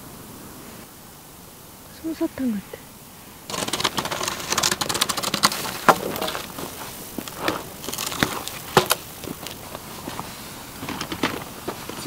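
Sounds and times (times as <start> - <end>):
branch scraping and knocking on dirt: 3.5 - 12.0
campfire crackling and popping: 3.5 - 12.0.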